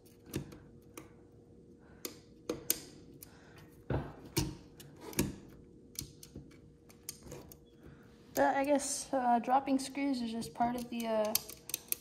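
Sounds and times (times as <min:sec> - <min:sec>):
faint steady hum: 0:00.0 - 0:12.0
small parts clicking and tapping: 0:01.9 - 0:03.4, 0:04.3 - 0:08.9, 0:10.4 - 0:12.0.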